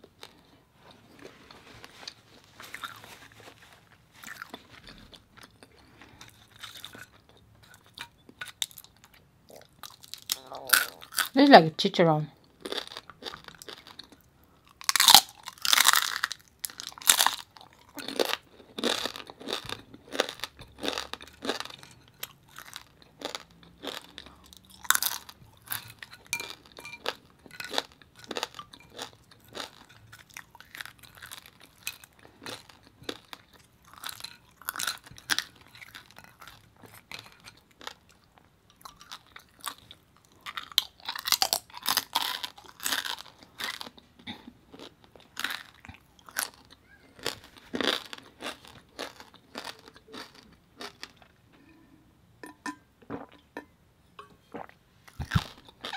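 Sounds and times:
person chewing crispy skin: 0.0 - 11.4, 12.4 - 51.4, 54.6 - 55.9.

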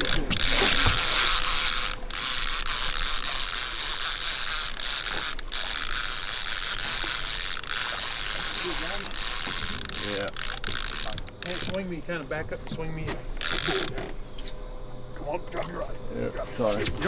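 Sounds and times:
fishing reel ratcheting: 0.0 - 11.9, 13.4 - 14.0.

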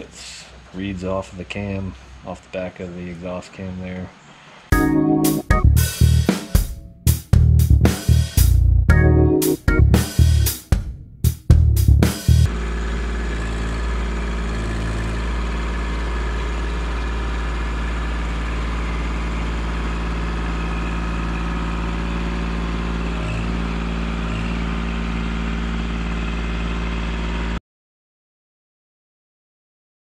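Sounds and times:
diesel tractor engine running: 11.8 - 27.6.

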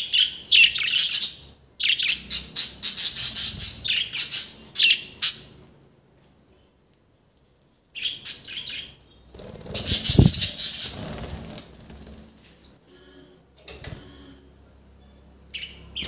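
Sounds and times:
bird chirps: 8.0 - 11.0, 15.5 - 16.0
birds flapping wings: 9.3 - 12.6.

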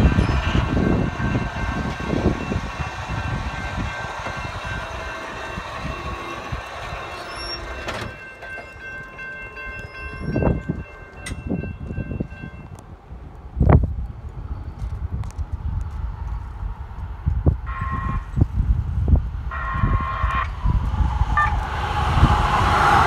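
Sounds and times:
crossing warning bell ringing: 0.0 - 12.8, 17.7 - 18.4, 19.5 - 21.6
low rumble: 13.5 - 23.0.

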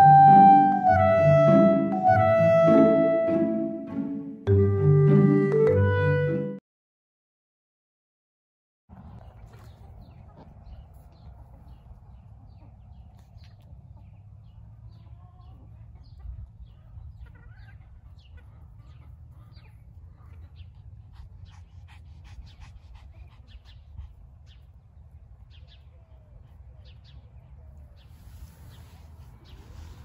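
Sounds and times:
hens clucking: 9.4 - 21.0.

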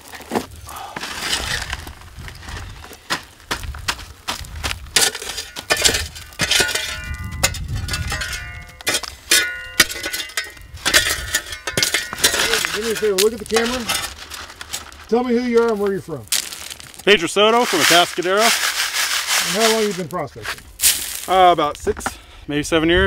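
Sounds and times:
shovel and pick striking soil: 0.1 - 1.8, 2.6 - 21.4
rocks clinking on a screen: 4.9 - 17.2.

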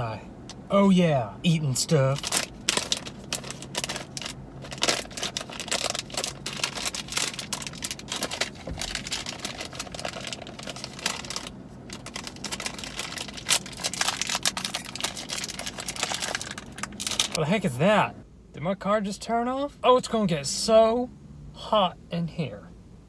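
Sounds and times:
plastic wrapper crinkling: 2.1 - 17.4.

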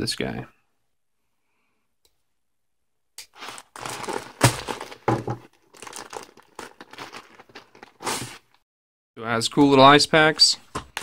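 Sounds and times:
plastic mailer crinkling and ripping: 3.3 - 8.6.

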